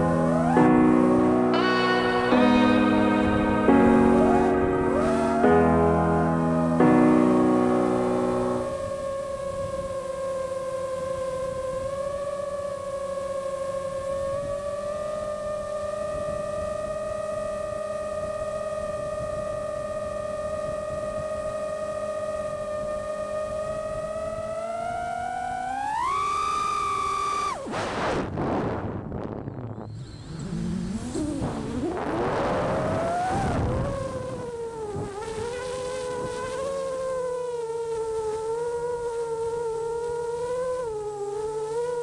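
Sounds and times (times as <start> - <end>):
quadcopter motors whining: 8.2 - 27.7, 29.9 - 42.0
wind rush: 27.4 - 36.8.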